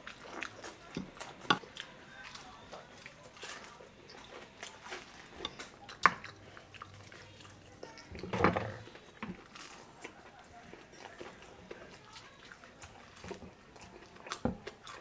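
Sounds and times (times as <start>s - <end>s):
child biting and chewing: 9.3s - 15.0s.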